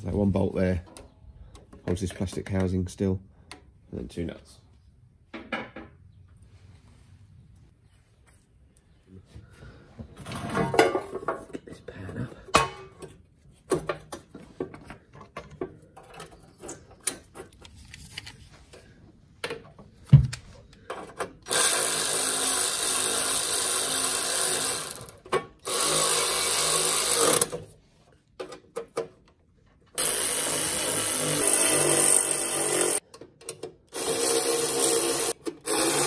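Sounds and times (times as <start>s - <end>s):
tools clicking and clattering: 12.5s - 18.4s, 32.8s - 34.3s
power driver running: 21.5s - 27.5s, 30.0s - 33.0s, 33.9s - 36.0s.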